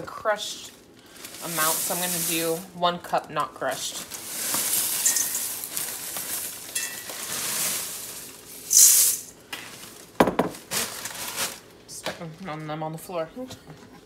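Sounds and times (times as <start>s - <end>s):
plastic bag crinkling: 1.0s - 2.7s, 3.6s - 11.8s
cornflakes pouring: 1.1s - 2.7s, 3.8s - 10.0s.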